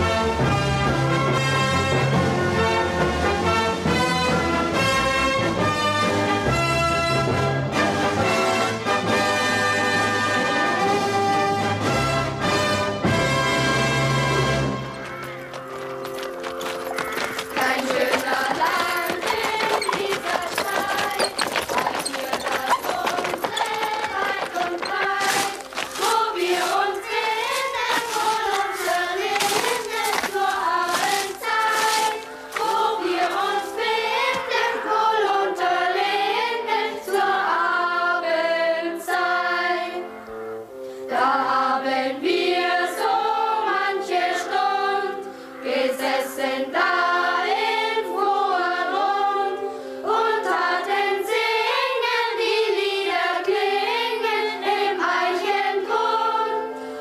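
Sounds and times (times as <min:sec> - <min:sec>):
held accompanying notes: 0:13.0 - 0:37.6
choir singing: 0:17.5 - 0:40.1, 0:41.1 - 0:57.0.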